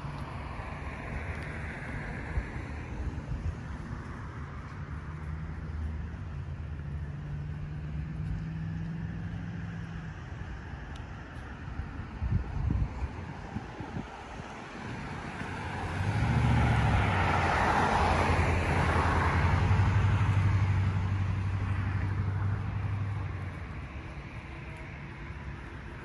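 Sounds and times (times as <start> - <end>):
car driving past: 5.0 - 10.2, 14.2 - 26.0.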